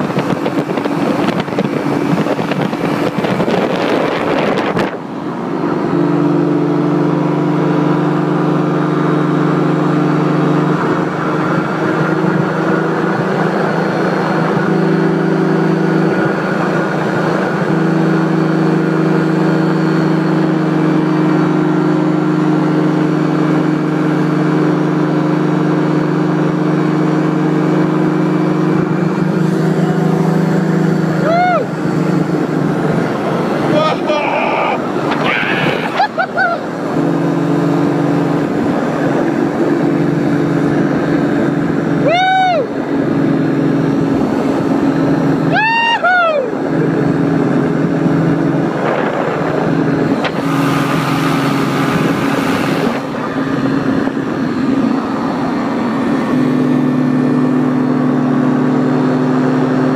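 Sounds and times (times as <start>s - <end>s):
wind on microphone: 0.0s - 5.2s, 46.8s - 56.4s
paramotor engine drone: 0.0s - 59.9s.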